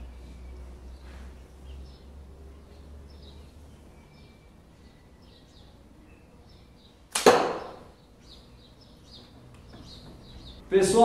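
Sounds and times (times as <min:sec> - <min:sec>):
small birds chirping: 0:00.0 - 0:11.0
sharp double crack of arrow shot: 0:07.1 - 0:07.9.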